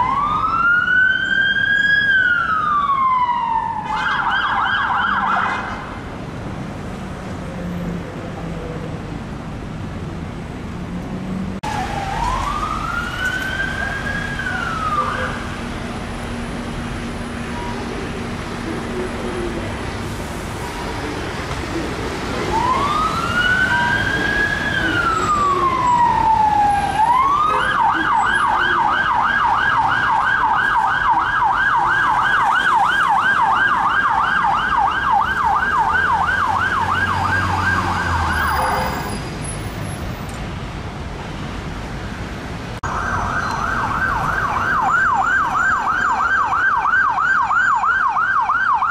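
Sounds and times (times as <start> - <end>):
police siren wail and yelp: 0.0 - 5.8, 11.6 - 15.6, 22.4 - 39.0, 42.8 - 48.9
traffic noise: 0.0 - 48.9.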